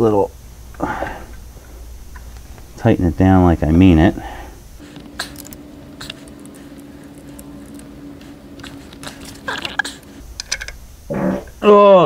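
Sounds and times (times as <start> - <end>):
steady hum: 0.0 - 12.0
wrench clicking on metal: 9.5 - 10.8.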